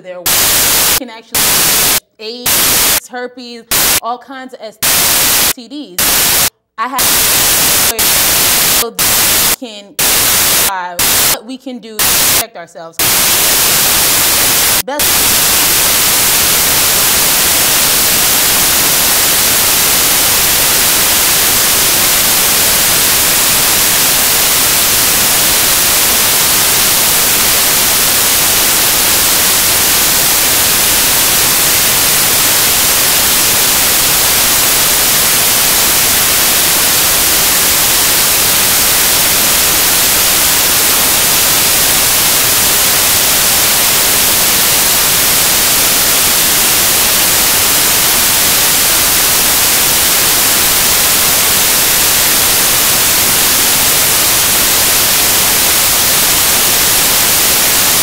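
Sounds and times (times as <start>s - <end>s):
static hiss: 0.0s - 3.0s, 3.7s - 4.0s, 4.8s - 11.4s, 12.0s - 58.0s.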